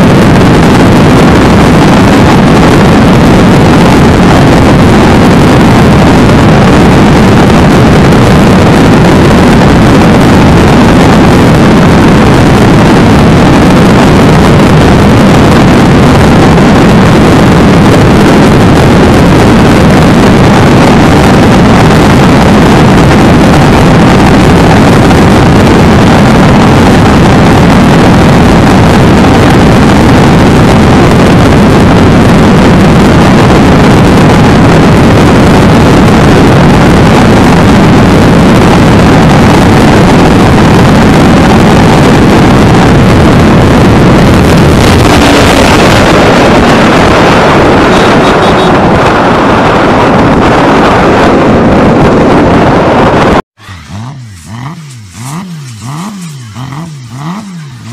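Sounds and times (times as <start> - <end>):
motorcycle engine at high revs: 0.0 - 57.9
wind rush on microphone: 0.0 - 57.9.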